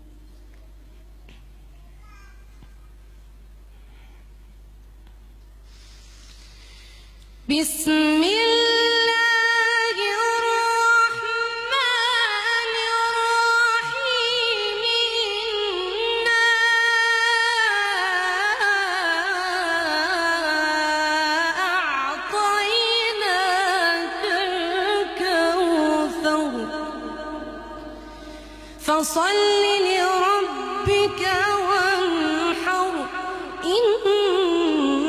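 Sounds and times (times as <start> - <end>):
woman reciting melodically: 7.4 - 35.0.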